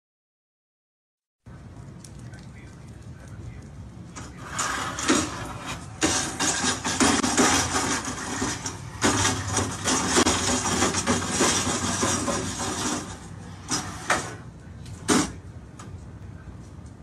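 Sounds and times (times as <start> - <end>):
metal chair legs scraping on floor: 4.2 - 14.4.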